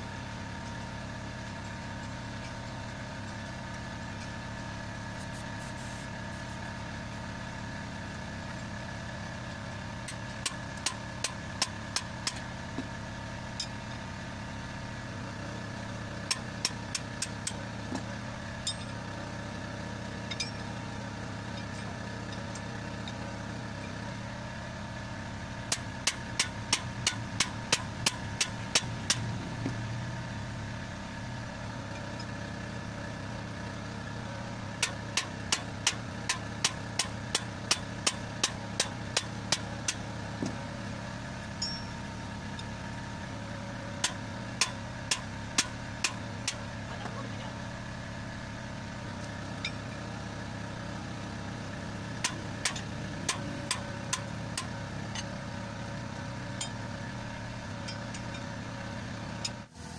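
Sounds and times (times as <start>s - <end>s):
engine idling hum: 0.0s - 59.9s.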